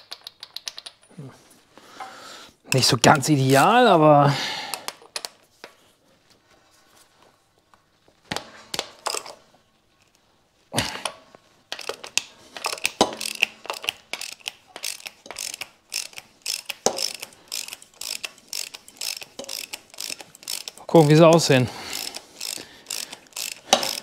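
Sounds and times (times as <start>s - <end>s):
ratchet wrench clicking: 11.7s - 24.0s.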